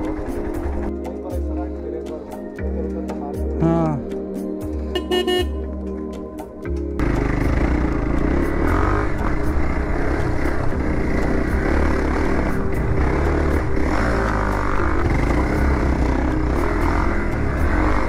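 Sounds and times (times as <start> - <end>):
motorcycle engine running: 0.0 - 1.0, 7.0 - 18.0.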